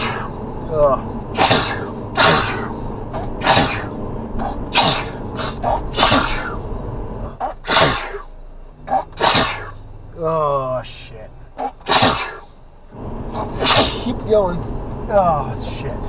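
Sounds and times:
man sneezing: 1.3 - 6.6, 7.4 - 8.3, 8.9 - 9.8, 11.6 - 12.5, 13.4 - 14.1.

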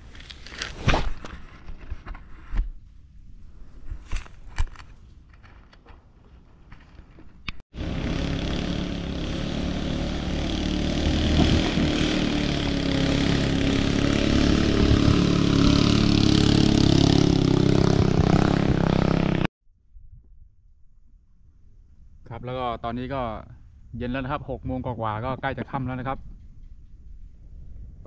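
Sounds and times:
motorboat engine drone: 7.8 - 17.5.

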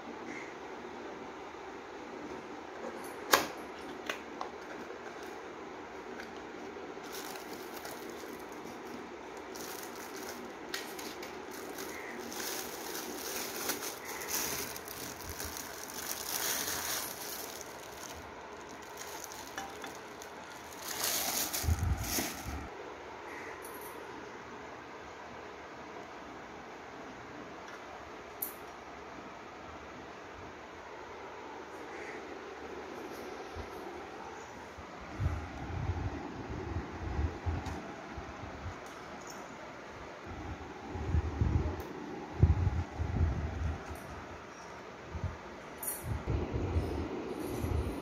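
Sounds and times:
plastic bag crackling: 7.0 - 22.7.

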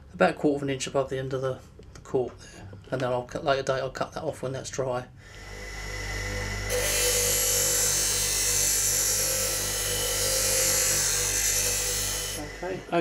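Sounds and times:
bench grinder motor hum: 5.3 - 13.0
metal grinding hiss: 5.4 - 13.0.

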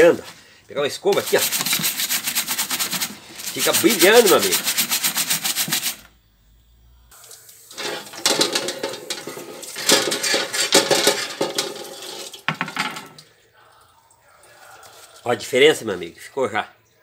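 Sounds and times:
tap water splashing on metal grille: 7.3 - 13.3
wire grille clattering against basin: 7.7 - 13.2.

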